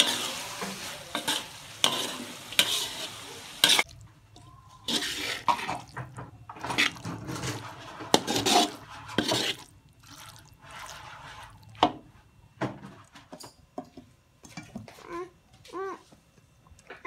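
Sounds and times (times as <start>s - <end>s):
metal spatula scraping a wok: 0.0s - 3.9s, 4.8s - 9.7s, 10.6s - 11.7s.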